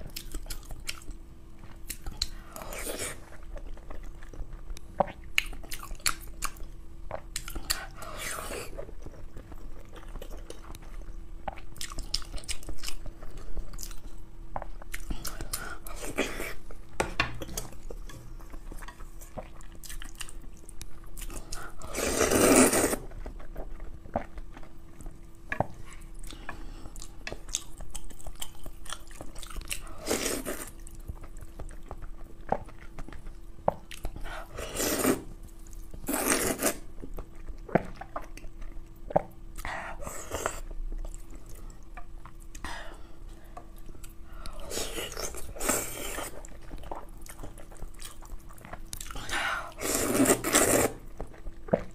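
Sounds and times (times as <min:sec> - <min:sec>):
chewing: 0:00.0 - 0:51.9
slurping noodles: 0:21.8 - 0:23.0, 0:34.4 - 0:35.3, 0:49.8 - 0:51.0.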